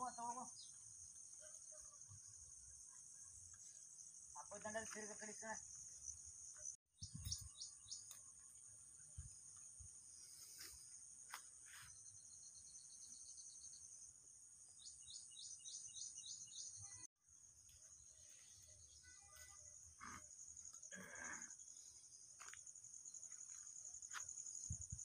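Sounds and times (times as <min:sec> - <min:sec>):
insects droning: 0:00.0 - 0:25.0
bird chirping: 0:05.8 - 0:08.6, 0:12.0 - 0:17.1.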